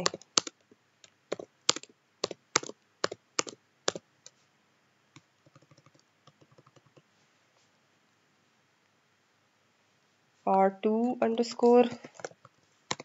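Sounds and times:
keyboard keystrokes: 0:00.0 - 0:00.6, 0:01.3 - 0:04.0, 0:05.4 - 0:07.0, 0:12.1 - 0:13.0.

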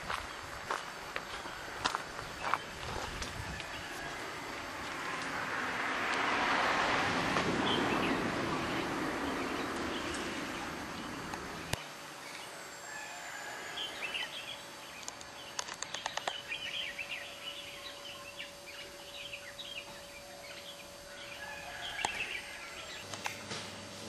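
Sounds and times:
birds chirping: 0:01.2 - 0:04.6, 0:07.5 - 0:12.6, 0:13.8 - 0:23.5
sharp clicks: 0:15.0 - 0:16.5
faint steady tone: 0:16.3 - 0:23.4.

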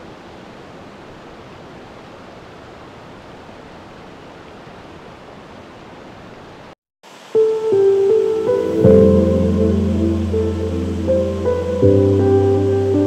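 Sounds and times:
waterfall rushing: 0:07.0 - 0:13.0.

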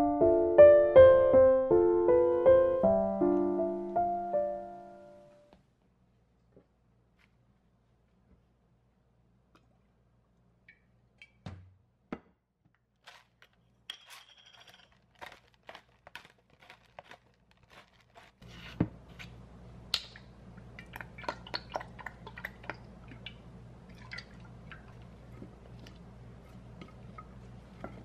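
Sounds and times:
lettuce crunching and rustling: 0:12.9 - 0:19.4.

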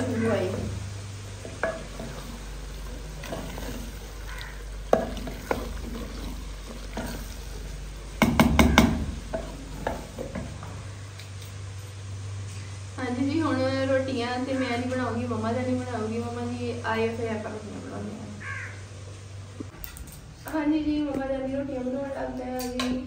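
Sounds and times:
faint sizzle: 0:00.0 - 0:23.0
wooden spoon knocking clay pot: 0:08.2 - 0:10.5.

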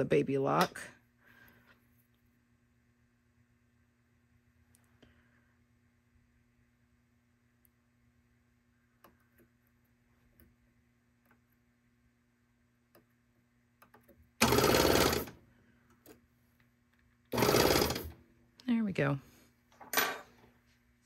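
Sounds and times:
air blasts through sewing machine: 0:14.4 - 0:15.4, 0:17.3 - 0:18.1.

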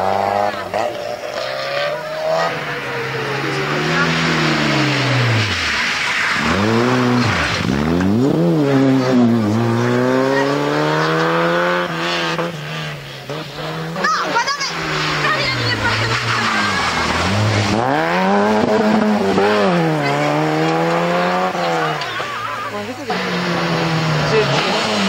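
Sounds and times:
rally car engine revving: 0:00.0 - 0:25.0.

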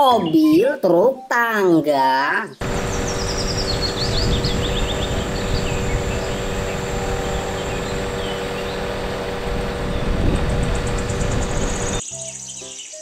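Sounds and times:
small birds chirping: 0:02.4 - 0:13.0
work platform engine rumbling: 0:02.6 - 0:12.0.

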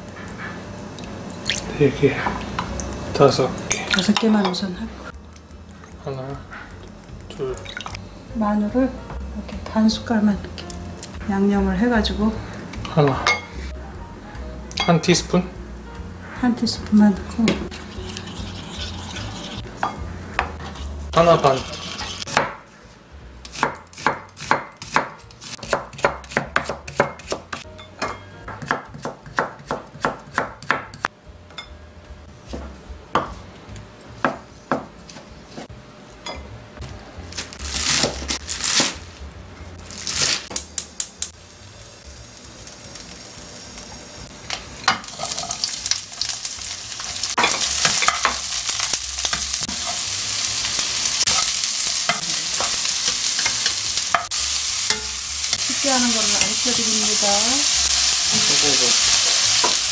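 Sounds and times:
vegetables sizzling in a wok: 0:00.0 - 0:13.8, 0:14.8 - 0:22.5, 0:36.5 - 0:59.9
knife chopping on wooden board: 0:23.5 - 0:27.6, 0:28.5 - 0:31.1.

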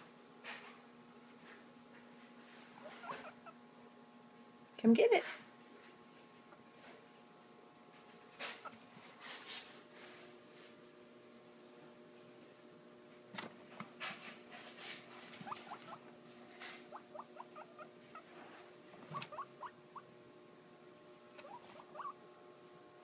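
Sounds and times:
guinea pigs squeaking: 0:02.7 - 0:03.6, 0:08.4 - 0:08.9, 0:14.7 - 0:20.1, 0:21.3 - 0:22.2.

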